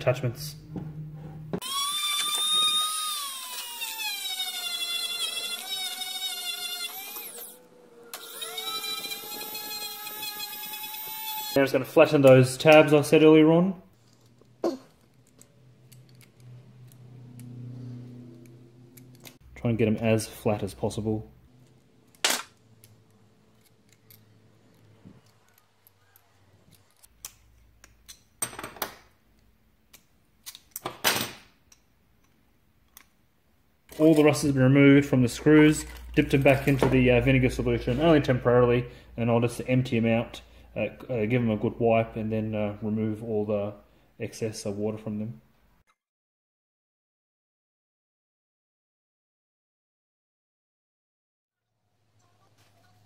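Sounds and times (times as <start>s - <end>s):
rotary tool wire brush whine: 1.6s - 11.6s
pliers clicking on metal tabs: 29.3s - 30.9s.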